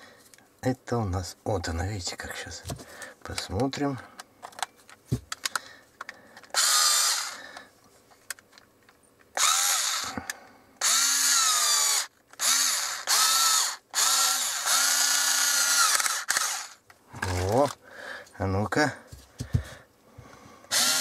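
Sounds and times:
cordless screwdriver motor whining: 6.5s - 7.4s, 9.4s - 16.8s, 20.7s - 21.0s.

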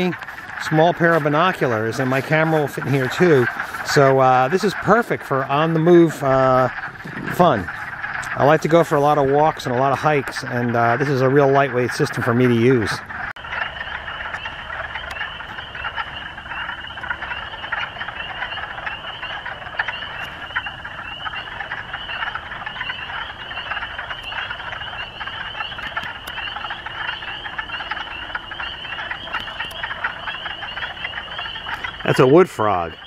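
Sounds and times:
frogs calling in chorus: 0.0s - 33.0s.

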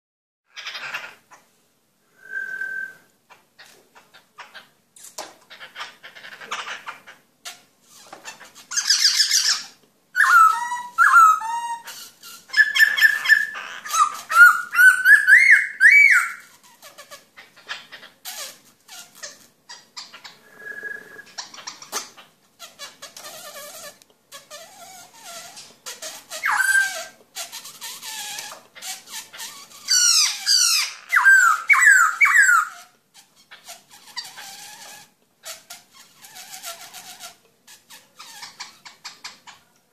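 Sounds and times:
bird whistling and hissing calls: 2.1s - 3.1s, 20.0s - 22.1s.

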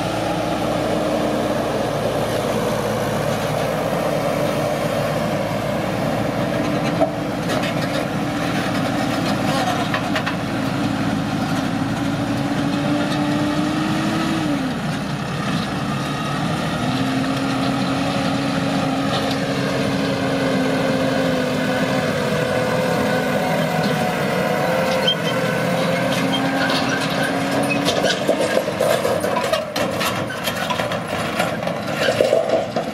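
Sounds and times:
heavy machine engine running: 0.0s - 32.9s
knocks and rattles: 26.2s - 32.9s.

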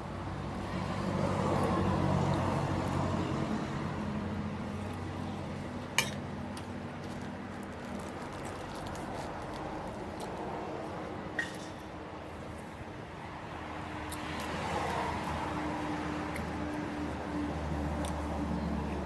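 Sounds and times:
vehicle passing: 0.0s - 19.0s.

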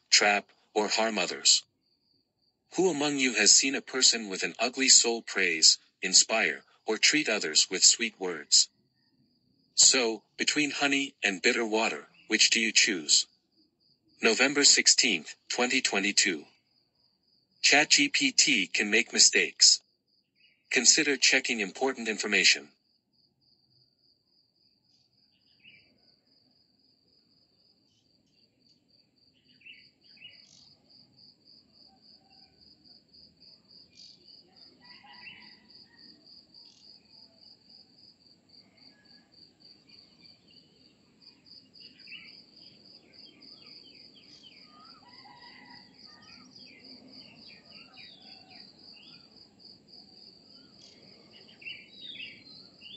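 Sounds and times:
bird chirps: 25.2s - 26.1s, 29.3s - 30.8s, 33.9s - 37.1s, 39.8s - 49.4s, 50.4s - 52.9s.

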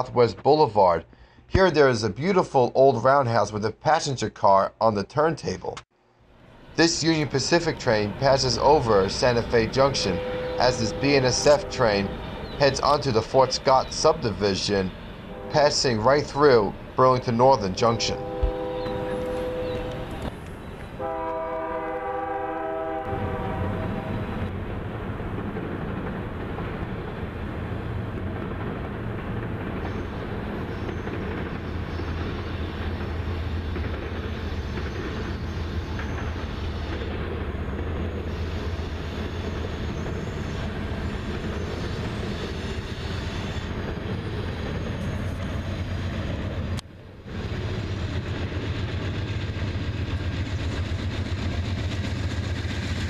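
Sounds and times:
diesel locomotive drone: 5.8s - 53.0s
wheels rumbling on rail: 6.3s - 53.0s
diesel locomotive horn: 8.7s - 13.6s, 15.3s - 16.3s, 17.6s - 20.4s, 21.0s - 24.5s.

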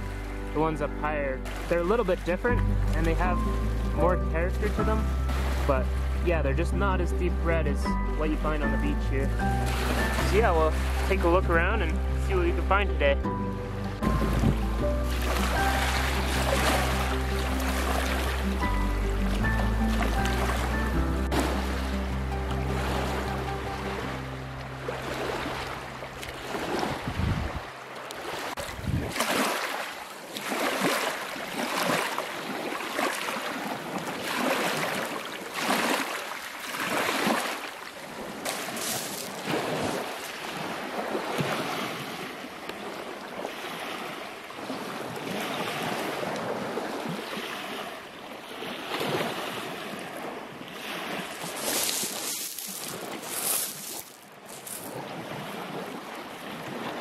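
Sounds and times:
small waves on pebble beach: 22.6s - 57.0s.

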